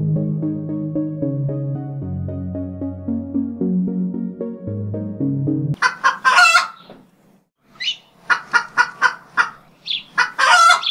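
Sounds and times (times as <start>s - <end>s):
electronic synth music: 0.0s - 5.8s
chicken clucking: 5.8s - 7.0s, 7.8s - 10.9s.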